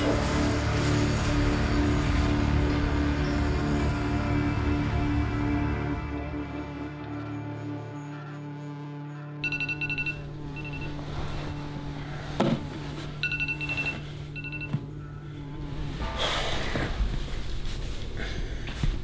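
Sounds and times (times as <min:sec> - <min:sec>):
soft music: 0:00.0 - 0:19.0
finger tapping phone: 0:09.4 - 0:10.9, 0:13.2 - 0:14.8
smartphone alarm beeping: 0:09.4 - 0:11.2, 0:13.2 - 0:14.9.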